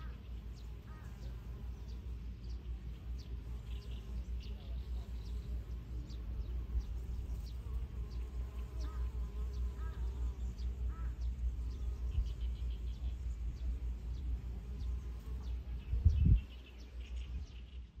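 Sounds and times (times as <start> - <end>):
bird chirps: 0.0 - 18.0
wind buffeting microphone: 15.6 - 18.0.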